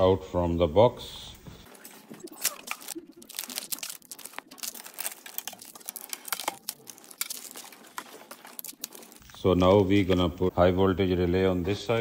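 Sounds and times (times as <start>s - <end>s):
packaging rustling and crinkling: 1.7s - 10.2s.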